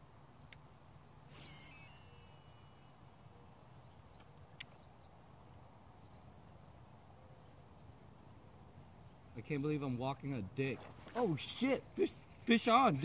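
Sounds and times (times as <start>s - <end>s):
fishing reel whirring: 1.2s - 3.2s.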